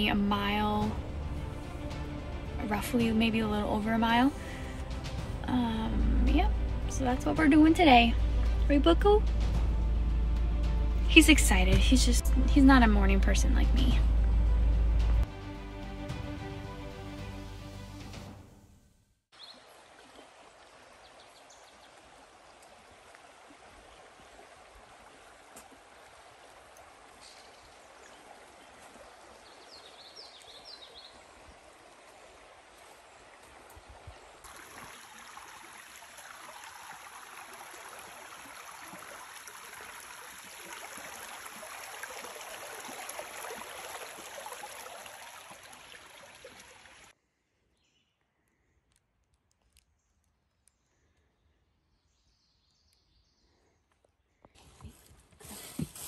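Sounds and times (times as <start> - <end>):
rushing stream: 19.4 - 47.2.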